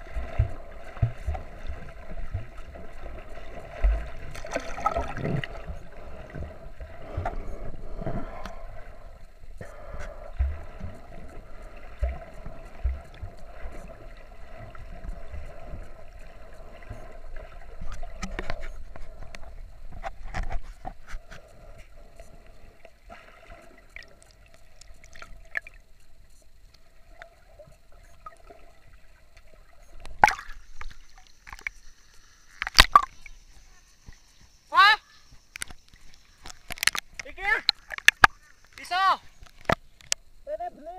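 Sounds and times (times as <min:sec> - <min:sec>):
small knocks underwater: 0:00.0 - 0:08.7, 0:09.6 - 0:16.0, 0:16.7 - 0:21.9, 0:29.3 - 0:31.8, 0:32.6 - 0:34.6, 0:35.3 - 0:40.3
underwater gurgling and sloshing: 0:00.0 - 0:40.4
faint steady tone: 0:00.0 - 0:40.9.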